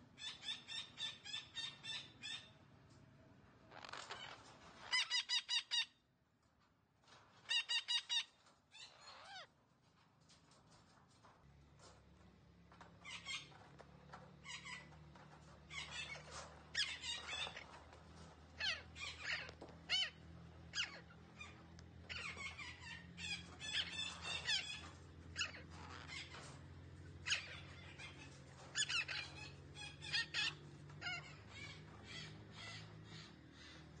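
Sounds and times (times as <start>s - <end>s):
parakeet calling: 0.2s - 2.5s, 18.6s - 24.8s, 25.4s - 26.4s, 27.2s - 33.9s.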